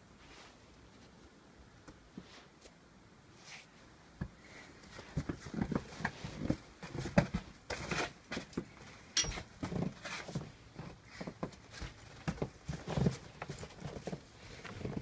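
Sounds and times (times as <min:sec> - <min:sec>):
dog paws tapping and scuffing: 0:04.2 - 0:15.0.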